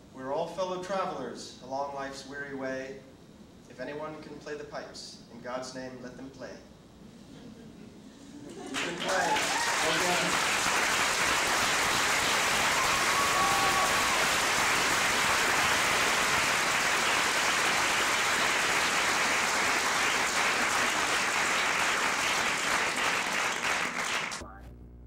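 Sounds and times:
audience applauding: 8.5s - 24.4s.

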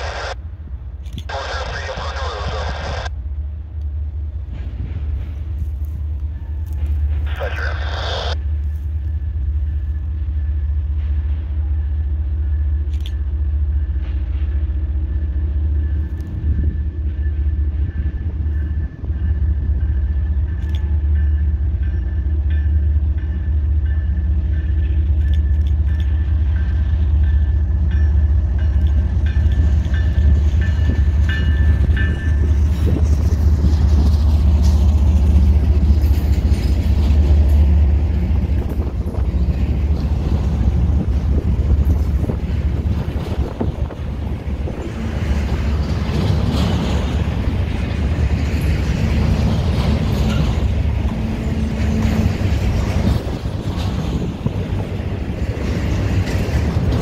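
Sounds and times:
freight train rumbling past: 0.0s - 57.0s.

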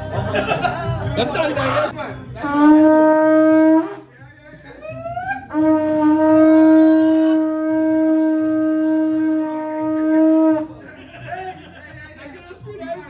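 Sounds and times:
horn blowing: 2.3s - 4.2s, 5.1s - 10.8s.

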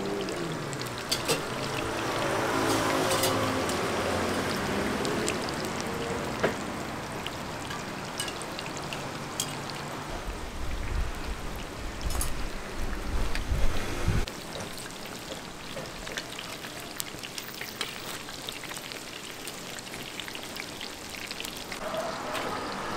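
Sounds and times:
hot oil sizzling: 0.0s - 22.9s.

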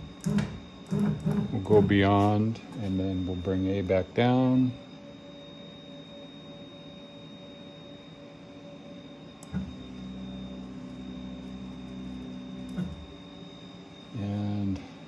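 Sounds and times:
axis drive click: 0.0s - 2.0s, 9.4s - 10.1s, 12.2s - 13.2s
faint hum with high whine: 0.0s - 15.0s.

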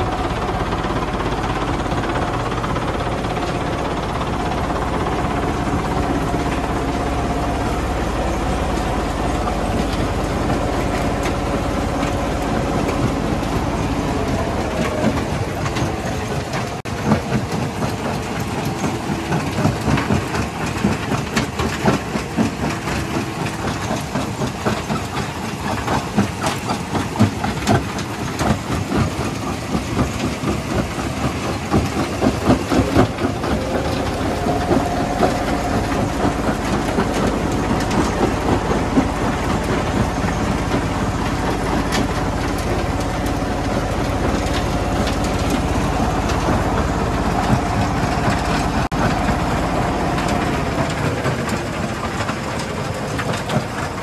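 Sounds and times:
machine hum with faint tone: 0.0s - 54.0s.

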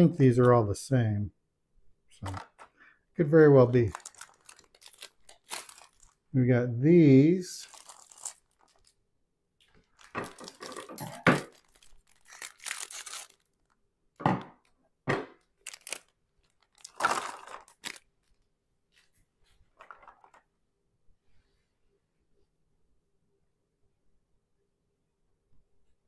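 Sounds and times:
plastic bag crinkling: 2.2s - 2.8s, 3.5s - 6.4s, 7.1s - 9.0s, 9.6s - 13.8s, 15.6s - 18.4s.

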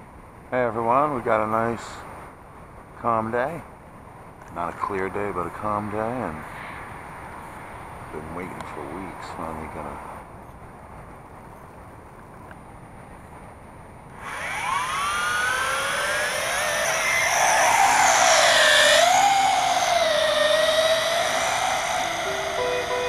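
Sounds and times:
toy quadcopter motors whining: 14.2s - 23.0s.

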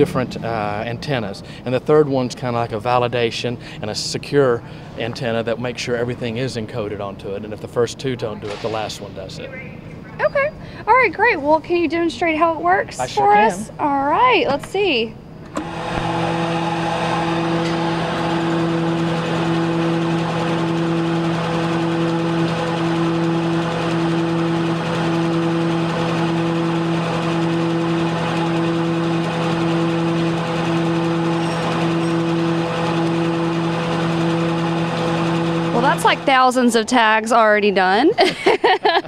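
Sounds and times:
machine motor hum: 15.4s - 37.6s.

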